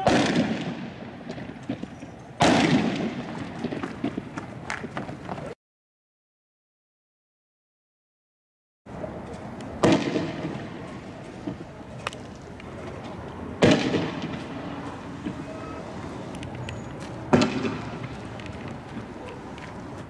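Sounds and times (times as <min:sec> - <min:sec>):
loud sharp bangs with echo: 0:00.0 - 0:04.3, 0:09.8 - 0:10.9, 0:13.6 - 0:15.4, 0:17.3 - 0:18.0
steady outdoor din: 0:00.0 - 0:05.6, 0:08.9 - 0:20.0.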